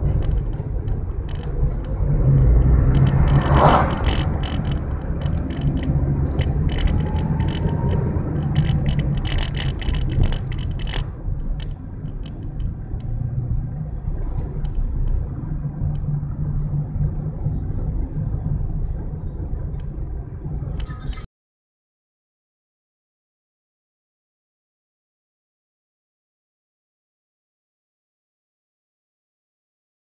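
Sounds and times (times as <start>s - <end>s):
sharp rattling clicks: 0.0s - 13.2s
engine and tyre rumble: 0.0s - 21.3s.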